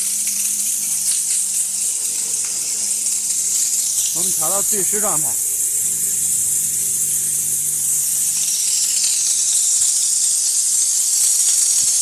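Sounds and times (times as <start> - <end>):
steam spray gun hissing: 3.9 - 9.9.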